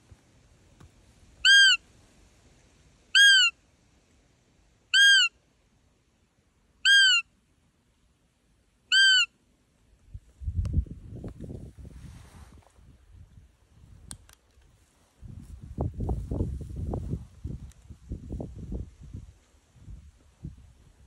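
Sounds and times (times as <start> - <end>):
high piping deer caller: 1.4 - 1.8, 3.1 - 3.6, 4.9 - 5.4, 6.8 - 7.3, 8.9 - 9.4.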